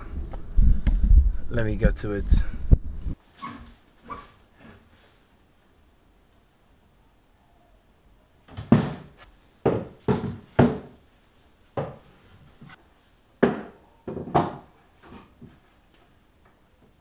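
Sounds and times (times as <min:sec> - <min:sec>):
wooden knocks and thunks: 0:08.5 - 0:11.0, 0:13.4 - 0:15.6.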